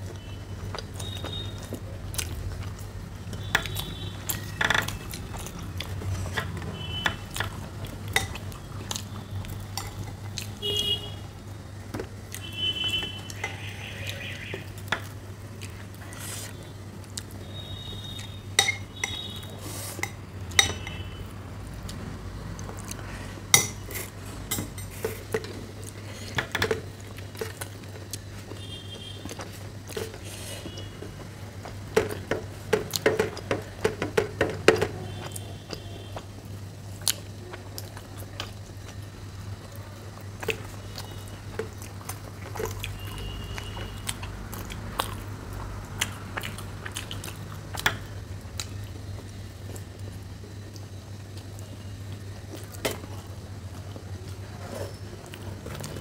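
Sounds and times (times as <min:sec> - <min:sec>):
chewing: 0:00.7 - 0:10.6, 0:13.3 - 0:20.6, 0:36.9 - 0:56.0.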